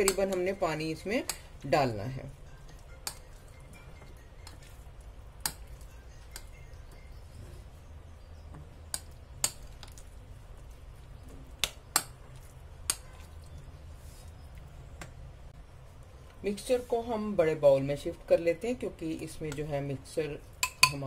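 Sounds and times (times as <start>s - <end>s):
spoon stirring batter: 0.0s - 15.3s
low steady hum: 0.0s - 21.0s
spoon clinking against glass bowl: 20.6s - 21.0s.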